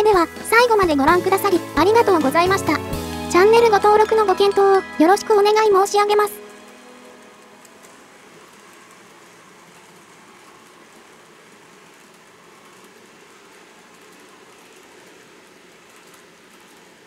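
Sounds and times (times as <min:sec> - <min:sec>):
model train wheels whirring: 0:06.5 - 0:17.0.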